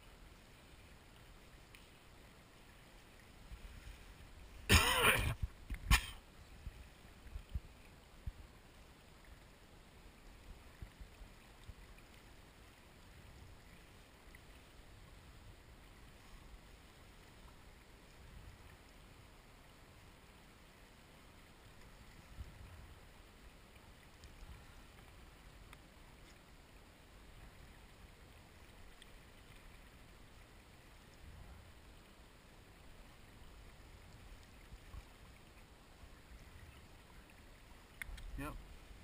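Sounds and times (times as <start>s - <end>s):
person clearing throat: 4.7s - 6.2s.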